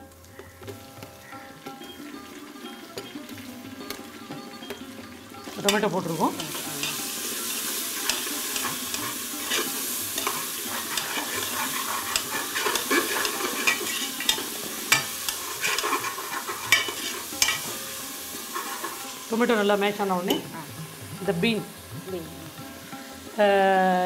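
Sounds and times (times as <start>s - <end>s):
tomatoes sizzling in oil: 0.0s - 24.0s
spoon scraping metal pot: 3.8s - 19.3s.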